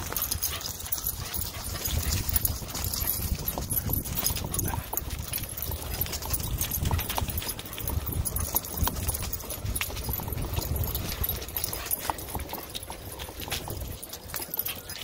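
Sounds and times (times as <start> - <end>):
galloping dog paws thudding: 0.0 - 15.0
leash clips and tags clicking: 0.0 - 15.0.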